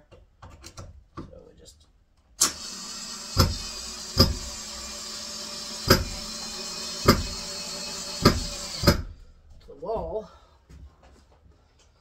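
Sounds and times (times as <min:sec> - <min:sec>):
cordless drill driving screw: 0:02.4 - 0:09.1.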